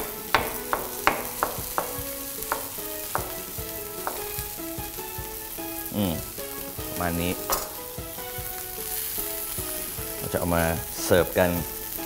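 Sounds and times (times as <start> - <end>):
knife tapping cutting board: 0.0 - 4.7, 7.4 - 8.6
steak sizzling in pan: 0.0 - 12.0.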